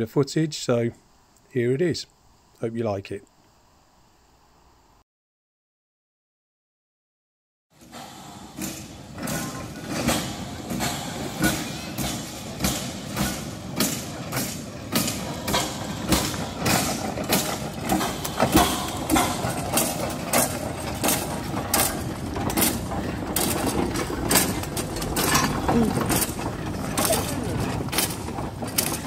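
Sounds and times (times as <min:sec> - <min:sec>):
steam locomotive exhaust chuffing: 0:07.8 - 0:29.0.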